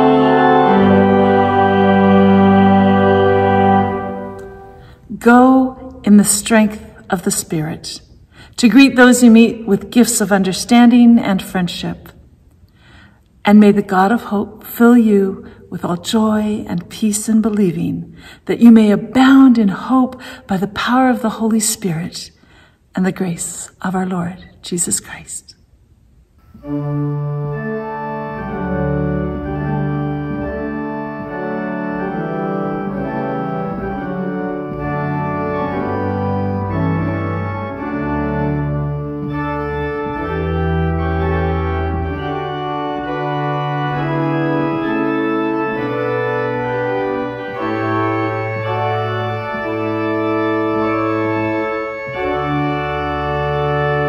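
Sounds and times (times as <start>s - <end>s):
organ playing slow chords: 0.0s - 6.0s, 26.4s - 54.0s.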